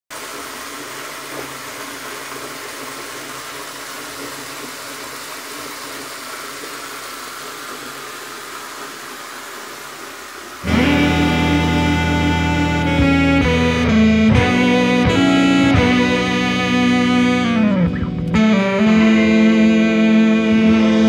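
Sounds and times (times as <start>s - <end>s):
loud music: 10.6s - 21.0s.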